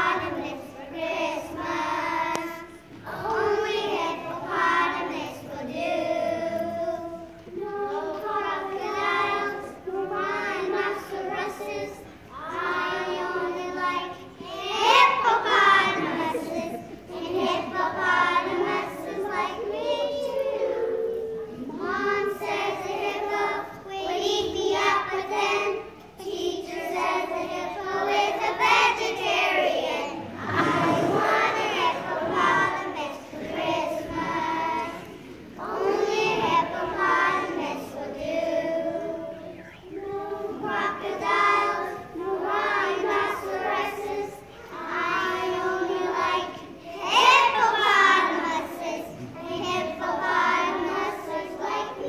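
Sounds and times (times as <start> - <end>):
children singing in unison: 0.0 - 52.0.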